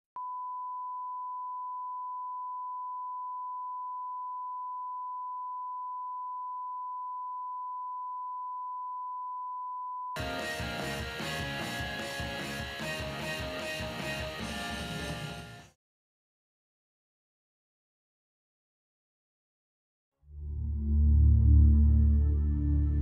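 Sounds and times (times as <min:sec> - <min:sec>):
sine-wave test tone: 0:00.2 - 0:10.2
music: 0:10.2 - 0:15.8, 0:20.3 - 0:23.0.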